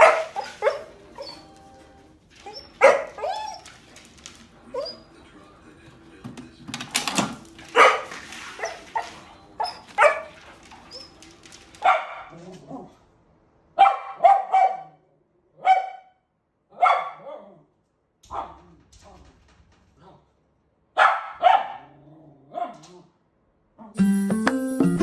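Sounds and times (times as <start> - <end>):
dog barking: 0.0 - 1.5, 2.4 - 3.7, 7.6 - 10.6, 11.8 - 13.0, 13.8 - 17.7, 18.3 - 18.7, 21.0 - 23.1.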